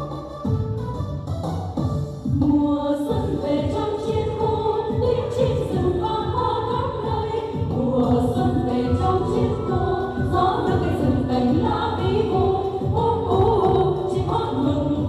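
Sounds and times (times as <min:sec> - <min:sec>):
amplified music with steady beat: 0:00.0 - 0:02.5
women singing into microphones: 0:02.3 - 0:15.0.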